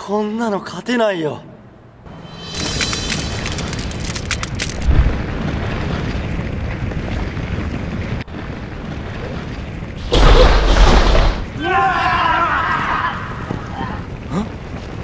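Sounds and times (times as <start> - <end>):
steady rushing rumble: 2.0 - 11.9
loud explosion-like blast: 4.8 - 6.3, 10.0 - 11.6
boom: 10.0 - 11.6.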